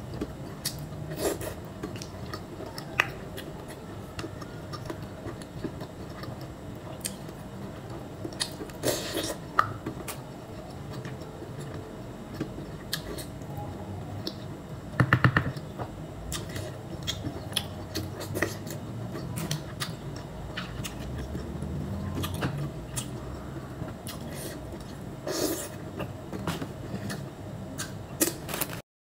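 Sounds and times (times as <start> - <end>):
mouth chewing and smacking: 16.3 - 21.5.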